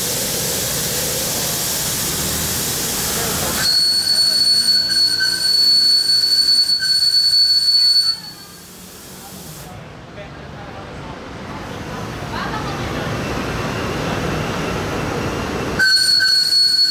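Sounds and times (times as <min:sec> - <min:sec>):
high-pitched steam whistle: 0:00.0 - 0:09.7, 0:15.8 - 0:16.9
steam hissing: 0:00.0 - 0:09.8, 0:13.0 - 0:16.9.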